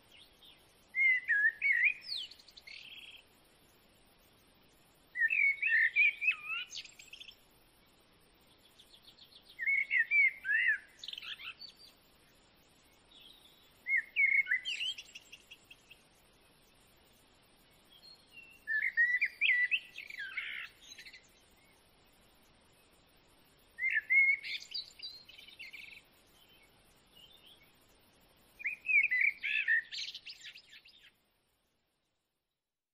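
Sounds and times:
bird chirping and warbling: 18.1s - 21.7s, 23.8s - 26.6s, 28.6s - 31.1s.

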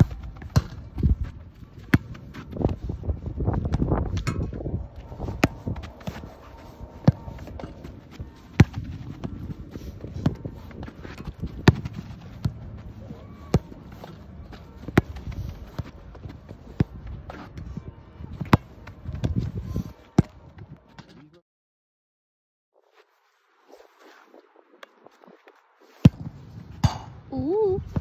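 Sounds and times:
footsteps shuffling on turf: 5.0s - 16.6s.

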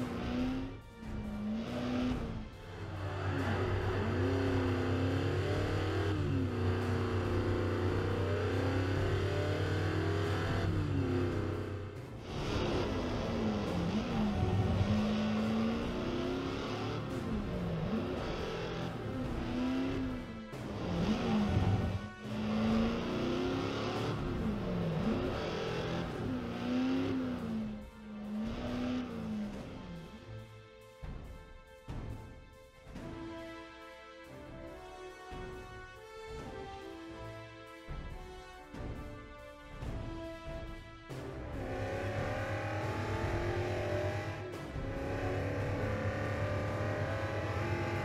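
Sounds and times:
race car engine revving: 0.0s - 30.3s, 40.1s - 48.0s.

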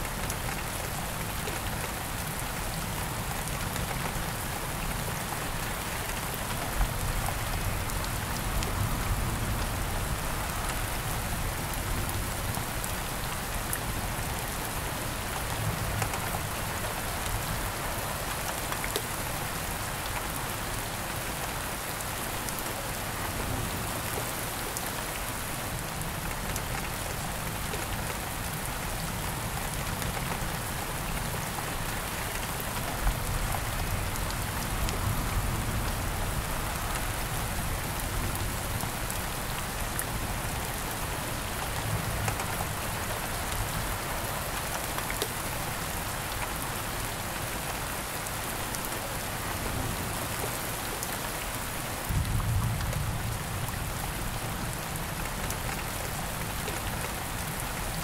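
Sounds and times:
steady rain hiss: 0.0s - 58.0s.

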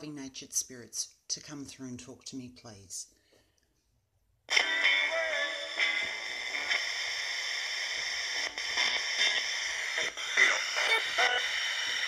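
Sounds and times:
radio static hiss: 4.5s - 12.0s
snatches of broadcast sound: 4.5s - 12.0s.

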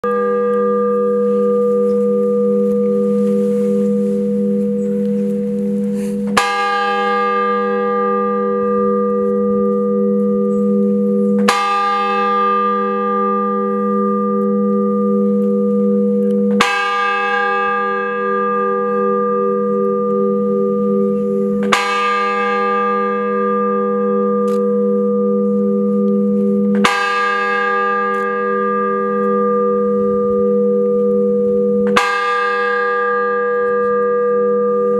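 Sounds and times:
large church bell tolling: 0.0s - 34.9s.

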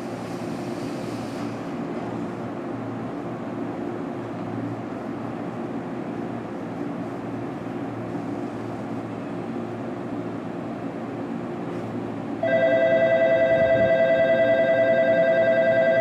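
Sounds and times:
electric train rumbling: 0.0s - 16.0s
electric platform bell ringing: 12.4s - 16.0s.

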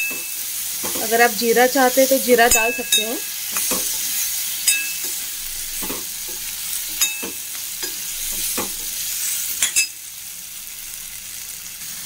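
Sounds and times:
spoon clinking and scraping pan: 0.0s - 1.1s, 2.4s - 10.0s
potatoes sizzling in oil: 0.0s - 12.0s.

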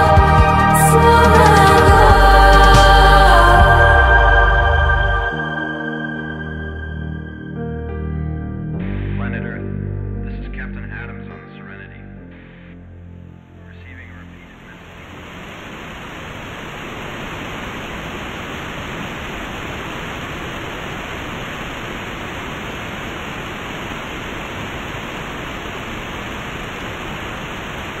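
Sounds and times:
waterfall rushing: 14.8s - 28.0s.

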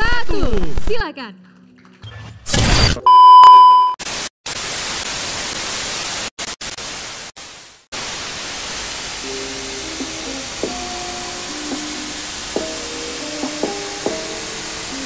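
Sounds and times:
loud beep tone: 2.5s - 4.0s
tv static hiss: 4.0s - 15.0s.

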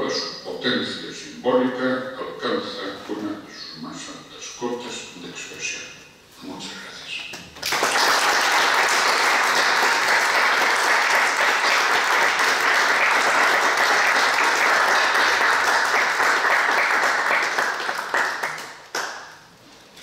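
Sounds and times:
audience applauding: 7.6s - 19.4s.

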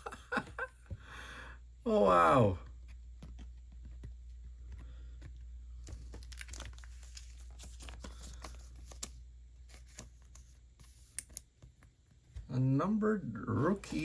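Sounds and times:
plastic sleeve crinkling: 5.8s - 11.0s.

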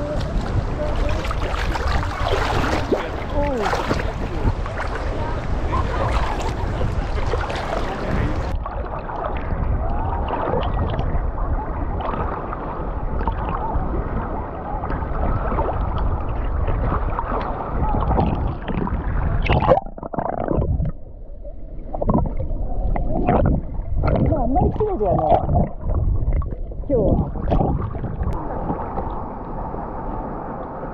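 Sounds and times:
water sloshing against camera: 0.0s - 29.5s
underwater gurgle: 0.0s - 30.9s.

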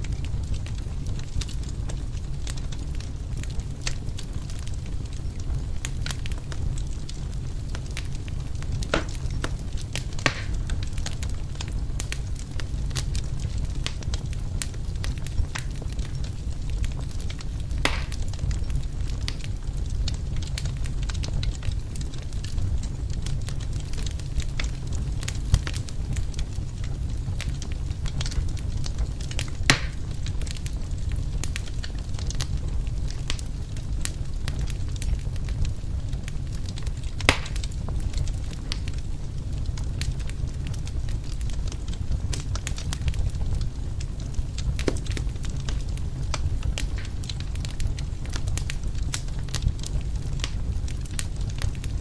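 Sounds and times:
low fire rumble: 0.0s - 52.0s
wood fire crackling and popping: 0.0s - 52.0s.

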